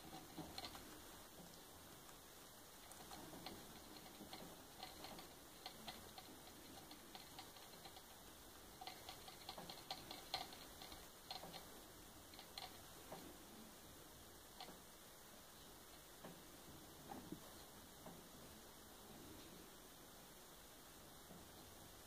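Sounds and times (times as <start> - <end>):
guinea pig chewing: 0.0 - 13.5.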